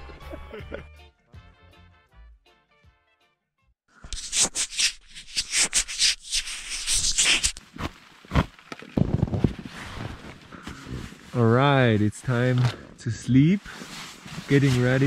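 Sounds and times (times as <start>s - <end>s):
sleeping bag fabric rustling: 13.6s - 15.0s.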